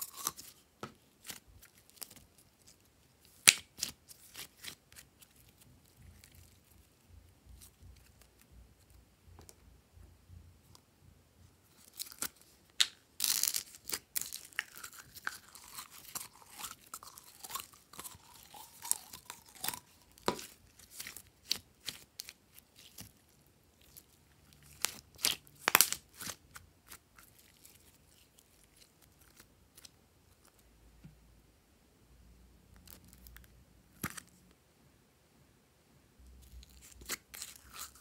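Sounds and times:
slime squelch: 13.2s - 30.6s.

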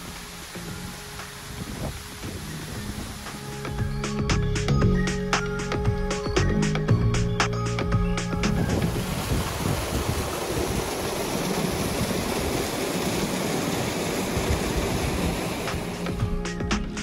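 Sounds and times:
river rushing over rocks: 0.0s - 4.0s, 8.5s - 17.0s.

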